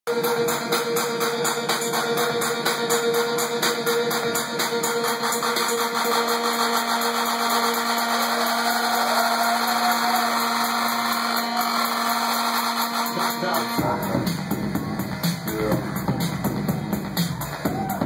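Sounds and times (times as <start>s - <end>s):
bass and kick drum: 0.1s - 18.0s
electronic dance music: 0.1s - 18.0s.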